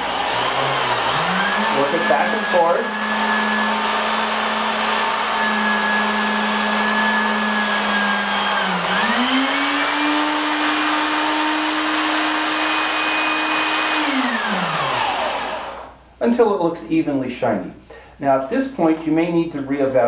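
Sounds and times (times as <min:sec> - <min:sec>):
electric drill motor running: 0:00.0 - 0:15.9.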